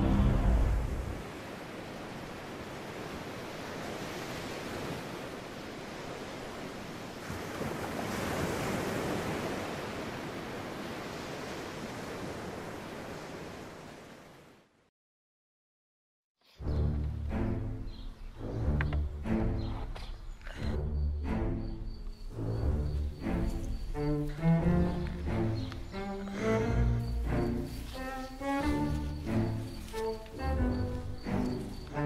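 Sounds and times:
sea waves washing: 0.0s - 14.6s, 22.2s - 32.0s.

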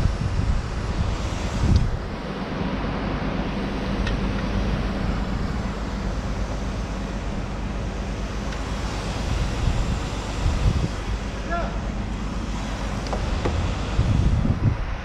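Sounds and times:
wind noise on microphone: 0.0s - 7.6s, 8.2s - 11.4s, 12.1s - 15.0s
low engine running: 0.0s - 15.0s.

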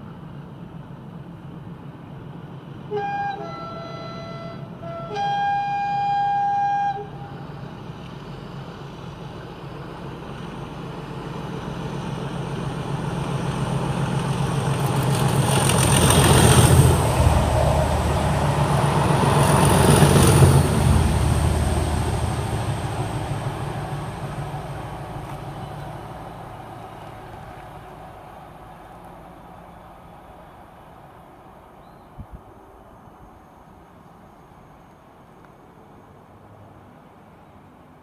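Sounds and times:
diesel locomotive engines growling: 0.0s - 37.9s
two-tone train horn blasts: 2.9s - 7.4s.

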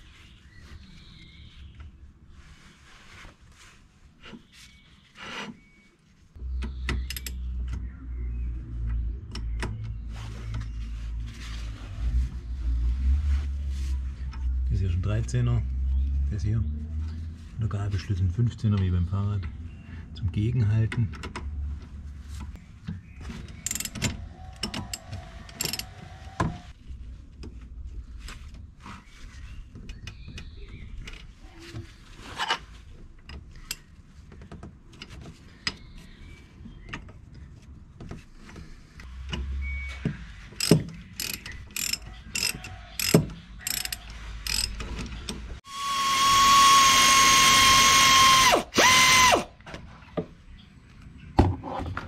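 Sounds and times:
air ratchet whining: 24.6s - 26.0s, 40.6s - 44.8s, 45.6s - 49.5s
socket ratchet clicking: 40.6s - 44.8s.

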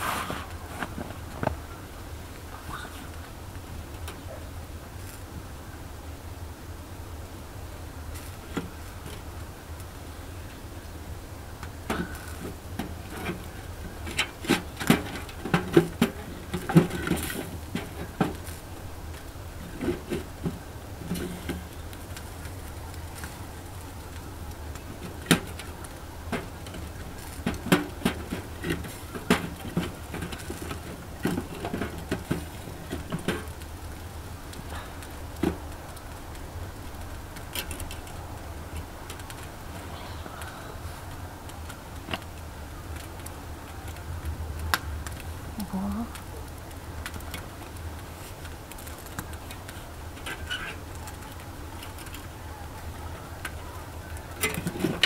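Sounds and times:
firewood knocking: 11.6s - 39.8s.

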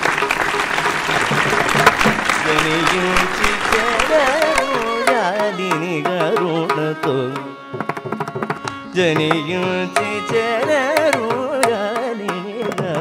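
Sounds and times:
sliding classical melody: 0.0s - 13.0s
drum strokes: 0.8s - 2.6s.

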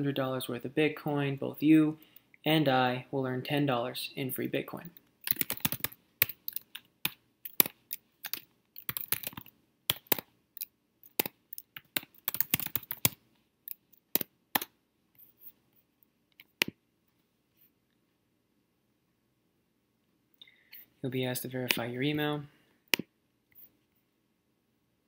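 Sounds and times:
typing on computer keyboard: 5.2s - 10.2s, 11.0s - 14.7s.

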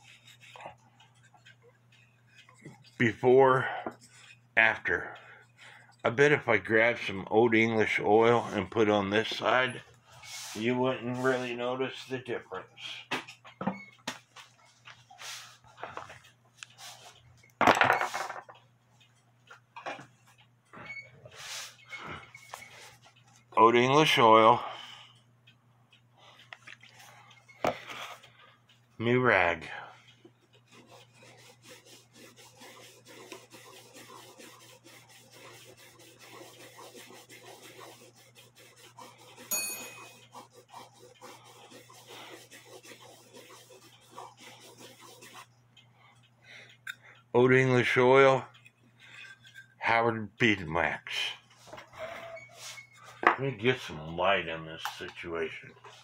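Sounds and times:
cloth rag rubbing wood: 10.2s - 12.1s, 15.2s - 15.6s, 21.4s - 21.8s, 30.6s - 45.5s, 52.0s - 52.8s.

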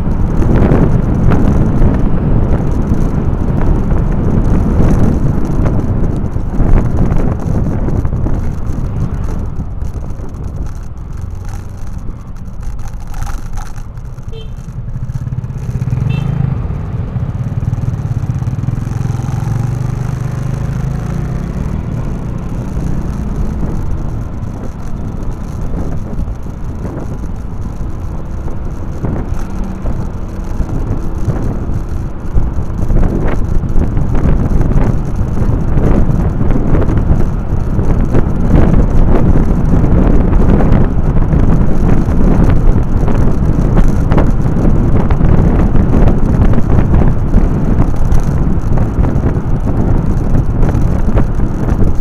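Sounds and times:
wind buffeting microphone: 0.0s - 52.0s
motorcycle engine pulling away: 14.8s - 52.0s.

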